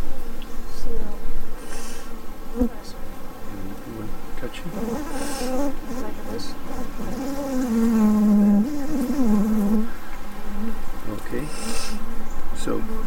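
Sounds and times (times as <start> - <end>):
honey bees buzzing: 0.0 - 13.0.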